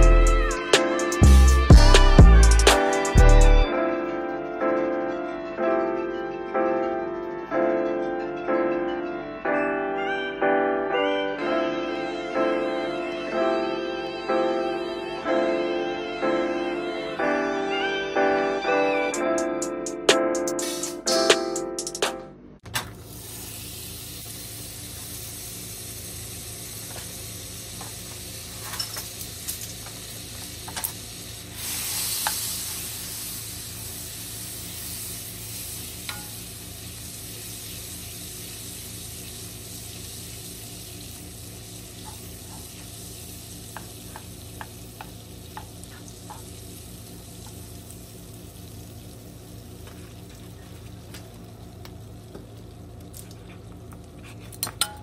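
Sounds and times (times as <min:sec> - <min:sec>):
butter sizzling in a frying pan: 0:23.0 - 0:53.0
wooden spatula tapping pan: 0:43.8 - 0:45.7.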